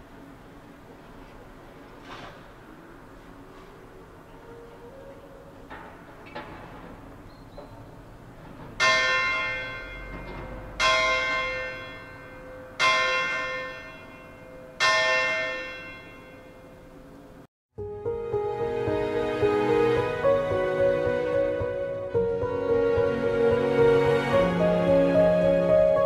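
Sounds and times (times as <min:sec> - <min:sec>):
large bell ringing: 0:08.8 - 0:17.0.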